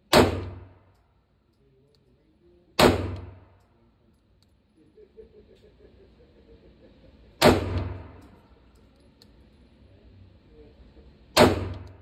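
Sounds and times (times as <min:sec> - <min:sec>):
gunshot echoing indoors: 0:00.0 - 0:00.9, 0:02.8 - 0:03.6, 0:07.4 - 0:08.4, 0:11.4 - 0:12.0.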